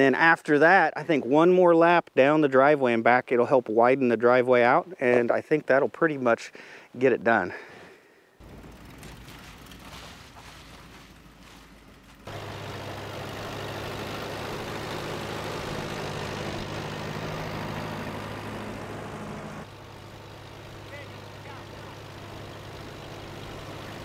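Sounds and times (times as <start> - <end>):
vehicle engine running steadily: 8.4 - 24.0.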